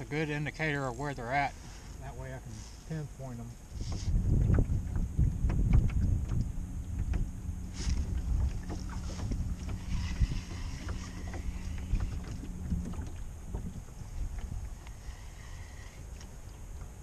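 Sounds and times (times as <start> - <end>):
steady low hum: 0.0 - 17.0
wind buffeting microphone: 0.0 - 17.0
low rumble: 3.5 - 16.1.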